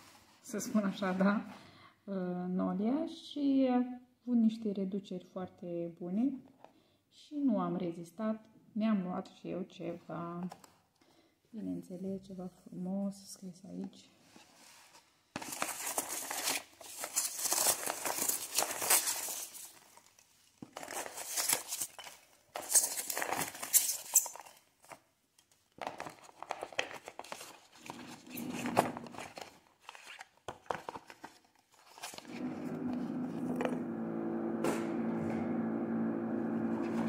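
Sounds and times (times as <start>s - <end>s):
packing peanuts rustling and squeaking: 15.4s - 25.0s, 26.0s - 32.3s
power drill motor hum: 32.3s - 37.0s.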